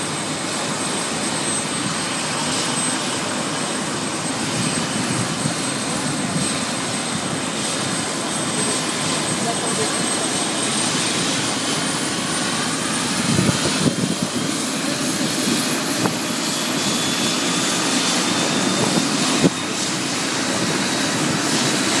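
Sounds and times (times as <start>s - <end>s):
helicopter engine and rotor: 0.0s - 22.0s.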